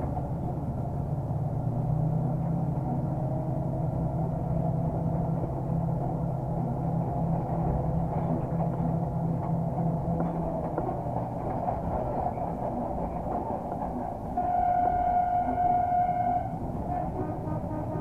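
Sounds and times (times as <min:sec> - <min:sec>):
locomotive engine and wheels rumbling: 0:00.0 - 0:18.0
locomotive horn: 0:14.3 - 0:18.0.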